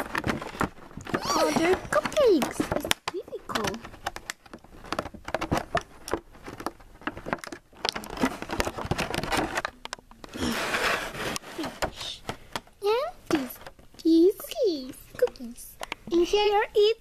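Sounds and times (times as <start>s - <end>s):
plastic packaging crinkling: 0.0s - 12.6s.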